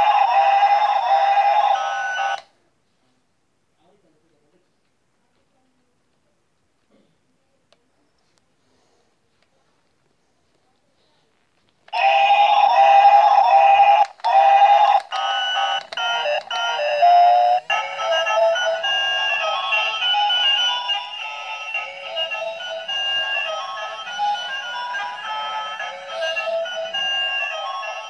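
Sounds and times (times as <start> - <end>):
tinny electronic toy tune: 0.0 - 2.4, 12.0 - 28.0.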